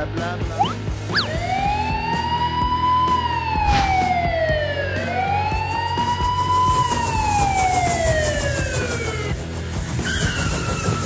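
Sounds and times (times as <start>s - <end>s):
wailing siren: 0.6s - 9.4s.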